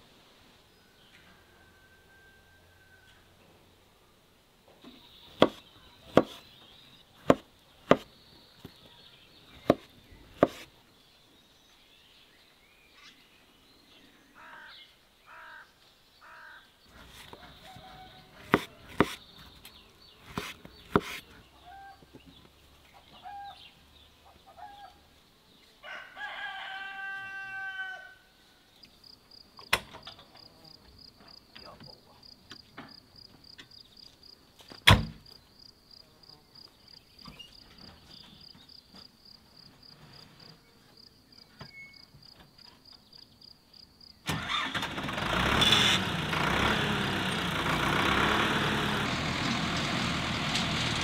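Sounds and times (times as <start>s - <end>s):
rooster crowing: 0.8s - 3.4s, 17.3s - 18.9s, 25.8s - 28.3s.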